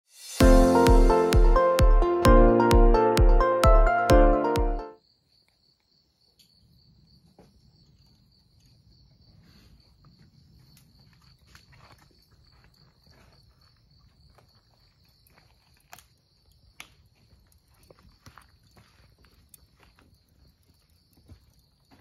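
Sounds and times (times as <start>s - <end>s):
crickets chirping: 5.0s - 22.0s.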